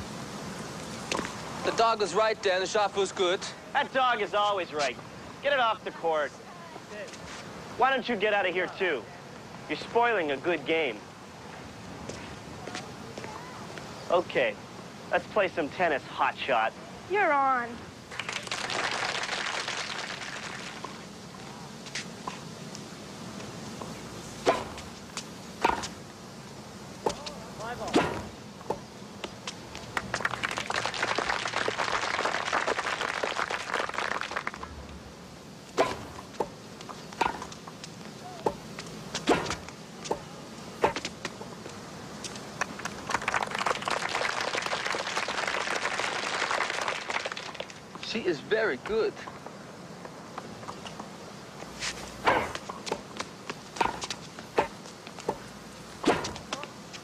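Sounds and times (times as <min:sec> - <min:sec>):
crowd applauding: 0:18.1 - 0:20.8, 0:29.9 - 0:34.7, 0:42.6 - 0:47.8
racquets striking tennis ball: 0:24.4 - 0:26.0, 0:27.0 - 0:29.4, 0:35.7 - 0:41.5, 0:51.8 - 0:57.0
tennis ball bouncing: 0:25.6 - 0:26.0, 0:27.0 - 0:27.3, 0:35.8 - 0:37.6, 0:38.4 - 0:41.5, 0:52.3 - 0:56.7.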